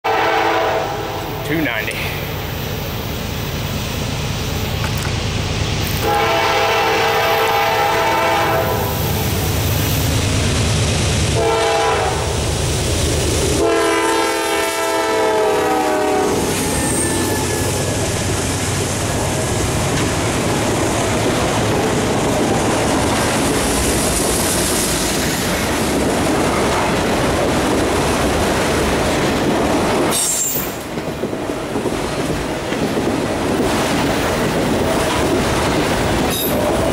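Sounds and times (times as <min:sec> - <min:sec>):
train horn blasts: 0:00.0 - 0:01.4, 0:06.0 - 0:09.0, 0:11.4 - 0:12.3, 0:13.6 - 0:18.0
train wheels clicking over rail joints: 0:02.3 - 0:06.1, 0:16.4 - 0:36.9.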